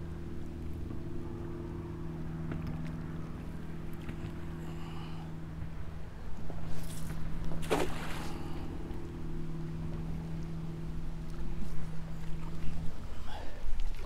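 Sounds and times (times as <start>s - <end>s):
steady low hum: 0.0s - 14.0s
cast net splashing on water: 7.6s - 8.6s.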